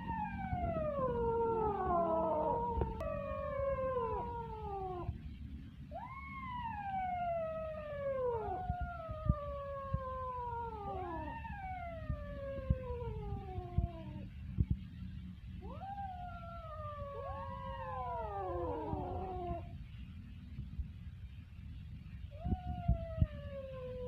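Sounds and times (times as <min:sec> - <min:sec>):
kittens meowing: 0:01.4 - 0:05.1.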